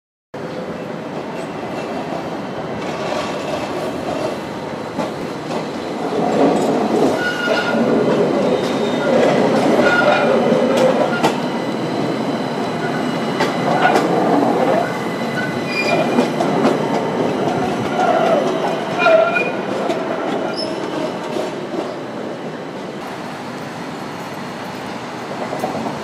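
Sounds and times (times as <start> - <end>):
city street noise: 0.4 - 26.0
electric tram passing: 0.4 - 26.0
tram wheels squealing: 5.2 - 22.2.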